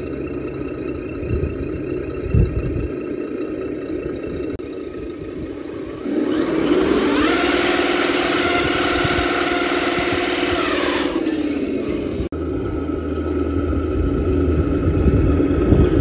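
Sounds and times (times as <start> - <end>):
toy truck motor whining: 2.3 - 12.3.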